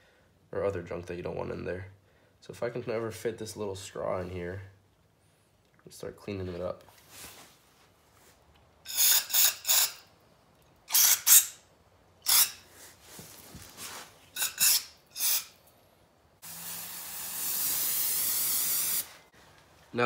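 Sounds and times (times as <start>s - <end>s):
aerosol spray hissing: 14.5s - 15.5s, 16.4s - 19.3s.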